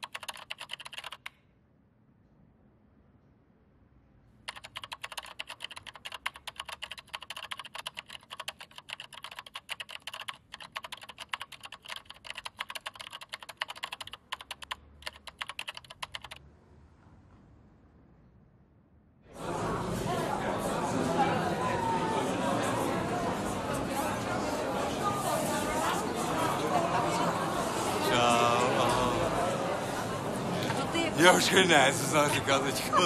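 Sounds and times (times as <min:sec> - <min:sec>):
fast typing on keyboard: 0:00.0 - 0:01.4, 0:04.4 - 0:16.4.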